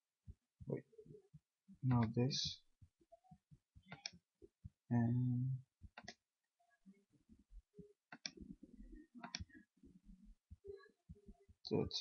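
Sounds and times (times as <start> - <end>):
computer mouse clicks: 3.9 - 4.2, 5.9 - 6.2, 8.1 - 8.4, 9.2 - 9.6.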